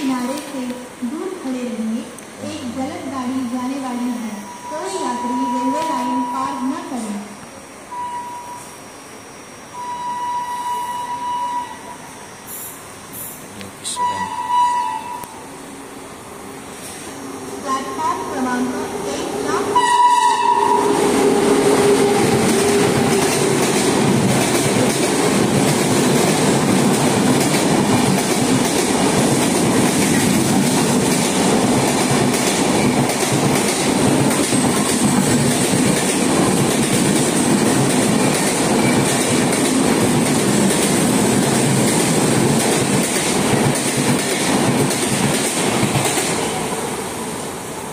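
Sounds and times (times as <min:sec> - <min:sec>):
train rushing past: 0:00.0 - 0:47.9.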